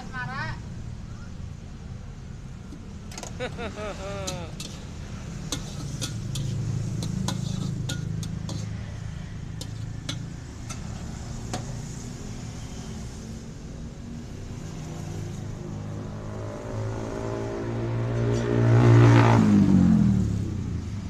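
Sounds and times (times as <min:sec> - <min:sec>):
metal cooking utensils clinking: 0:04.2 - 0:04.9, 0:05.5 - 0:08.8, 0:09.6 - 0:11.0.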